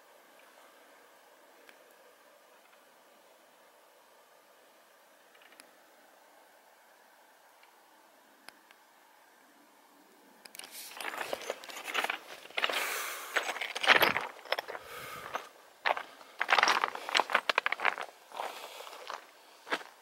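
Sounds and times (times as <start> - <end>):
clothing and straps rustling: 10.6 - 19.9
footsteps on rocky trail: 10.9 - 20.0.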